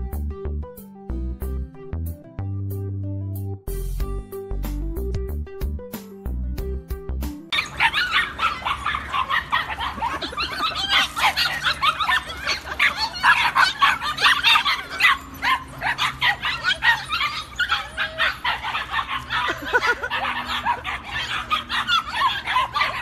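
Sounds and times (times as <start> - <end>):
puppies yipping and whimpering: 7.5 - 23.0.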